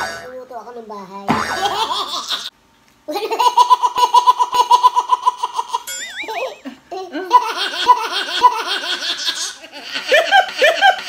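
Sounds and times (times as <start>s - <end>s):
high-pitched giggling laughter: 3.1s - 11.0s
wobbling cartoon sound effect: 5.9s - 6.8s.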